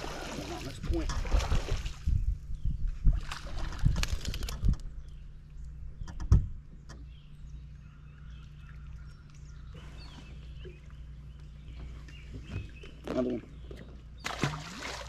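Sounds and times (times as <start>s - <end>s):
water splashing: 0.0s - 2.1s, 14.2s - 15.0s
low steady hum: 0.0s - 15.0s.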